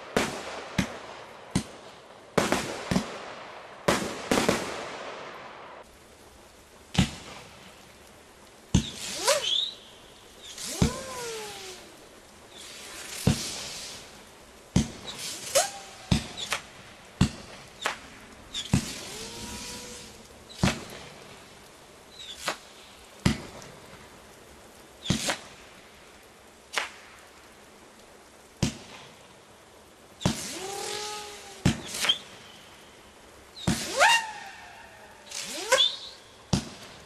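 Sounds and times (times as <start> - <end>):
firework launch reports: 0.0 - 5.9, 8.7 - 24.0, 25.0 - 25.8, 30.2 - 37.0
buzzing hum of flying shell: 10.4 - 13.4, 18.5 - 20.8, 30.5 - 32.2.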